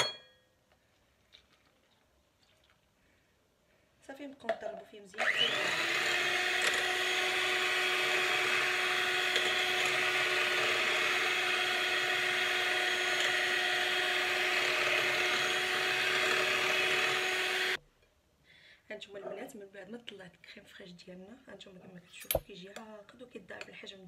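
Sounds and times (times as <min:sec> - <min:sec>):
electric hand mixer whining: 0:05.2 - 0:17.8.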